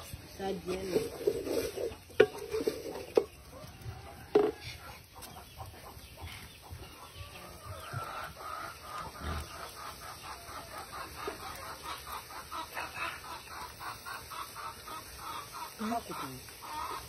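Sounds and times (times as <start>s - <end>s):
spatula scraping metal pot: 0.0s - 3.4s
chickens clucking: 0.0s - 17.0s.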